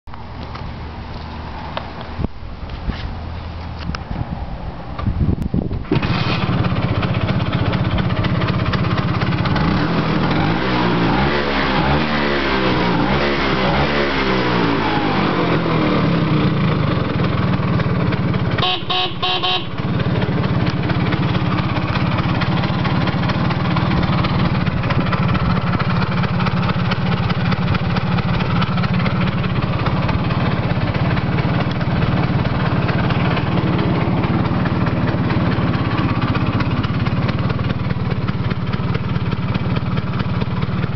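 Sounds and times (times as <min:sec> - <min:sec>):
scooter engine revving and idling: 0:05.7 - 0:40.9
short horn beep: 0:18.5 - 0:19.9.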